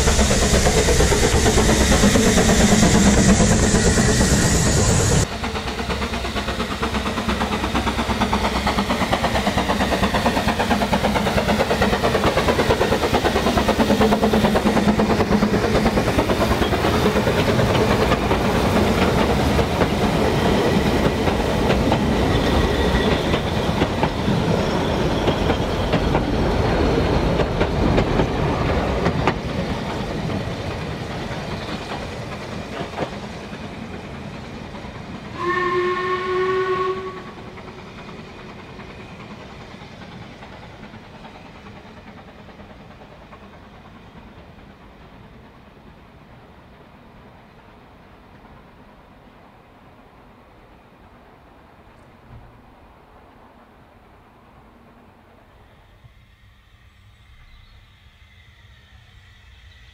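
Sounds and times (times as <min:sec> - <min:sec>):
train wheels clattering: 0:00.0 - 0:46.7
steam whistle: 0:35.4 - 0:37.5.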